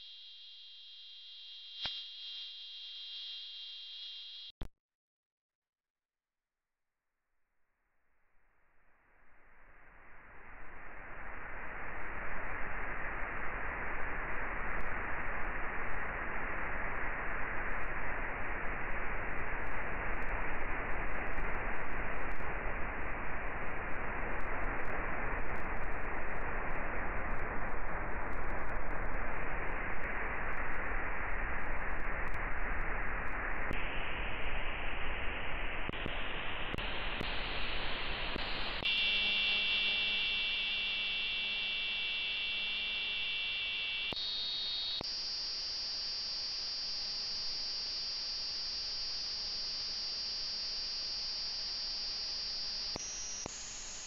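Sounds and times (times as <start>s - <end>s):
radio static hiss: 33.8s - 54.0s
buzzing multi-pitch tone: 38.8s - 54.0s.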